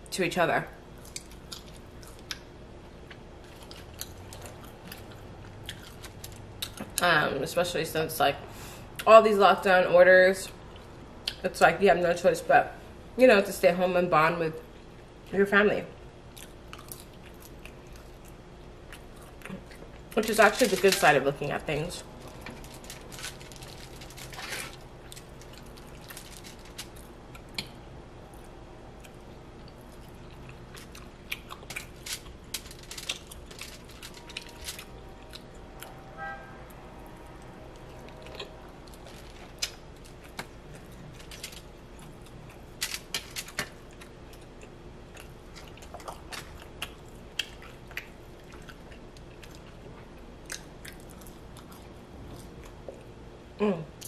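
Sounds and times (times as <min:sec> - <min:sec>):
person chewing: 0:00.9 - 0:06.9, 0:16.3 - 0:20.2, 0:22.2 - 0:35.9, 0:37.8 - 0:53.2
low hum: 0:20.7 - 0:43.3.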